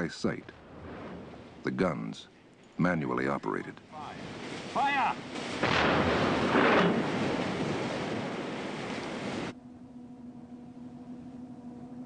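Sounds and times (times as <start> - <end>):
deck gun blast: 5.2 - 8.0
faint steady hum: 9.5 - 12.0.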